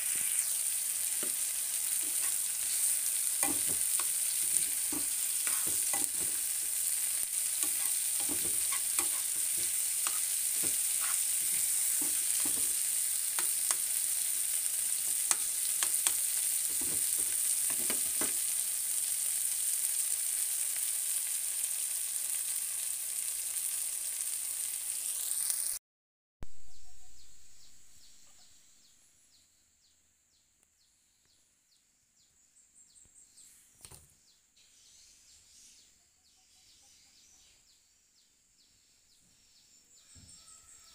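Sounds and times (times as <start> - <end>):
food sizzling in oil: 0.0 - 25.8
spatula scraping and knocking pan: 1.1 - 18.5.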